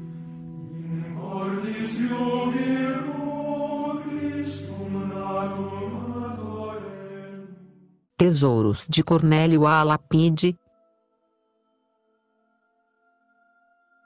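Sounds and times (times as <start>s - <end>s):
choir singing chant: 0.6s - 7.8s.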